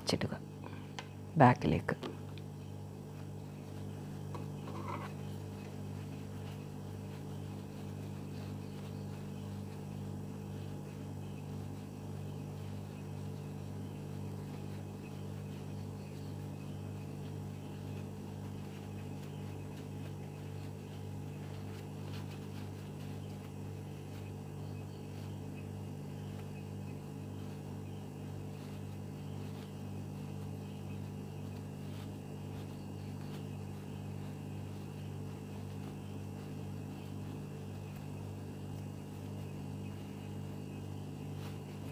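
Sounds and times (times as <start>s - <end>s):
steady low hum: 0.0s - 41.9s.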